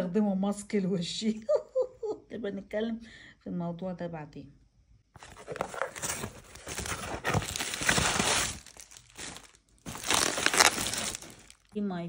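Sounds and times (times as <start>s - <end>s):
bubble wrap and cardboard crinkling: 5.2s - 11.8s.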